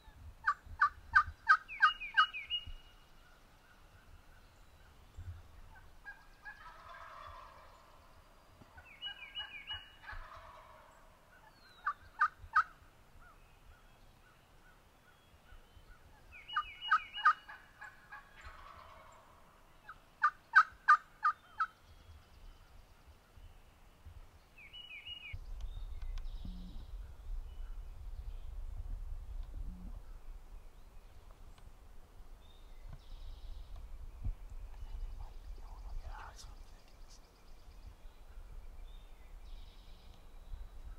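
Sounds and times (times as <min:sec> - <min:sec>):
turkeys gobbling: 0:06.0 - 0:08.0, 0:09.1 - 0:10.9, 0:16.8 - 0:19.3, 0:20.2 - 0:21.7.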